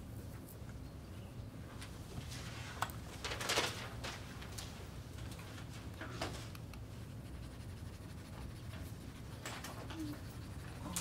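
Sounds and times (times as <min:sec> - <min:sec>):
low room hum: 0:00.0 - 0:11.0
scratchy writing strokes: 0:06.8 - 0:11.0.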